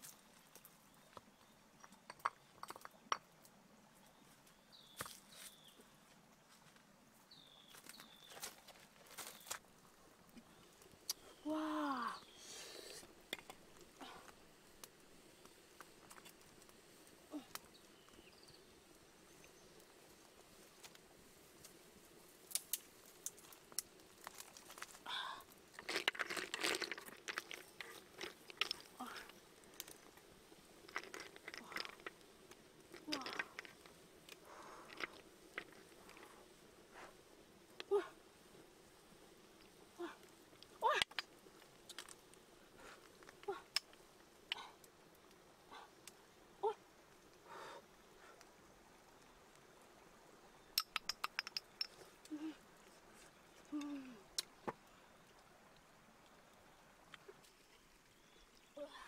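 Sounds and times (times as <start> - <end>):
hard objects clicking on rock: 1.2 - 3.3, 13.3 - 13.6, 25.7 - 36.4, 40.6 - 42.4, 43.1 - 44.6, 50.8 - 52.1
crackling of cooking snails: 10.3 - 20.0, 20.8 - 52.6.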